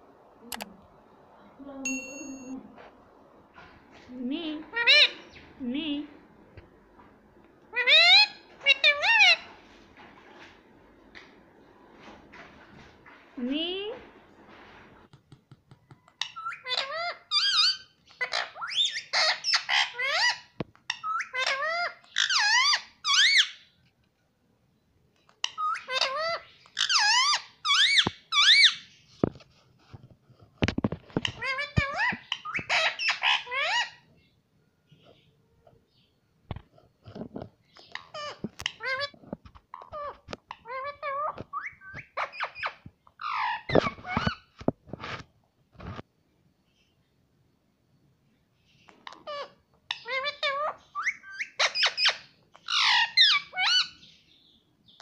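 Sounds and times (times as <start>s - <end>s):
parakeet calling: 4.5s - 5.6s, 7.7s - 9.5s, 16.2s - 23.7s, 25.4s - 29.0s, 31.2s - 34.3s, 39.8s - 44.5s, 49.0s - 54.2s.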